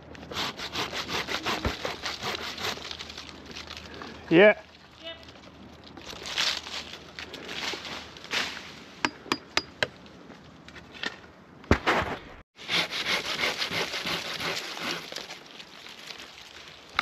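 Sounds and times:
branches crackling and rustling: 1.8s - 9.0s, 14.0s - 17.0s.

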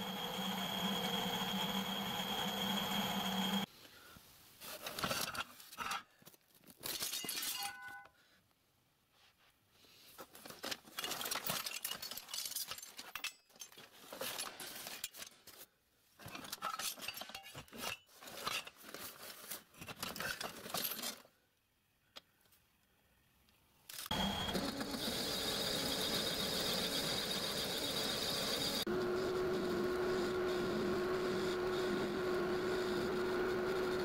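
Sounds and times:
metal lathe running: 0.0s - 3.7s.

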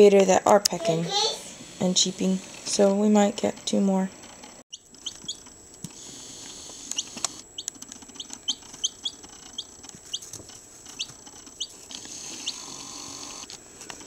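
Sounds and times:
chicks peeping: 4.7s - 5.4s, 6.5s - 12.8s.

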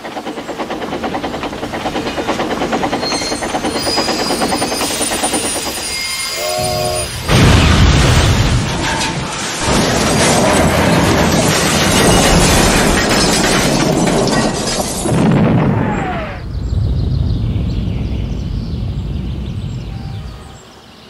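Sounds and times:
loud train crash: 0.0s - 18.4s
horn-like chord: 6.4s - 7.1s.

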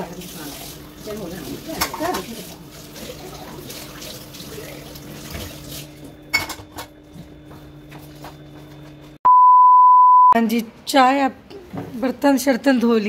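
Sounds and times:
dish clinking: 6.3s - 6.8s.

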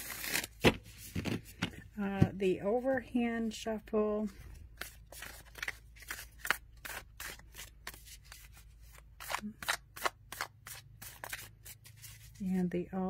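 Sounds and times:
cards shuffling in soft swishes: 4.3s - 12.4s.

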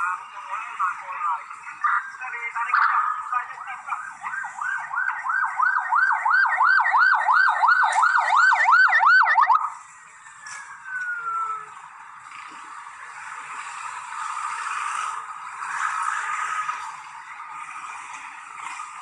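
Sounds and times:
electronic siren yelping: 3.9s - 9.7s, 10.4s - 11.8s.

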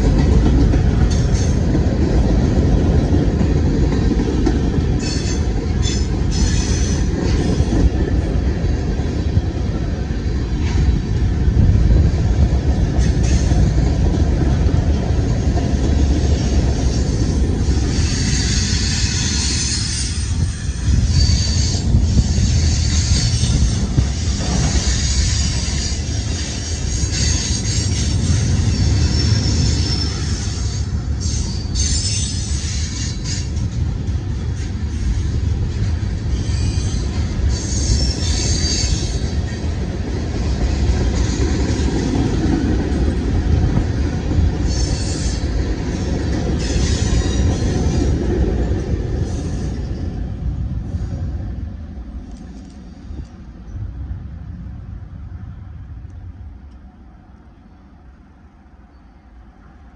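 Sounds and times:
freight train rumbling past: 0.0s - 59.9s
high wheel squeal: 5.0s - 7.9s, 16.2s - 33.8s, 34.6s - 39.7s, 44.6s - 48.2s.

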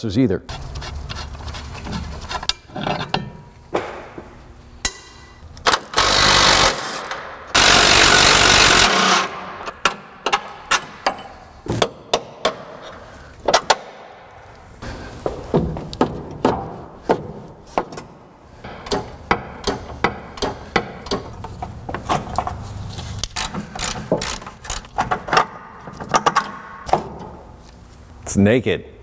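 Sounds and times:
metal tools clanking: 1.8s - 3.5s, 9.8s - 11.5s
impact wrench running: 5.6s - 10.4s.

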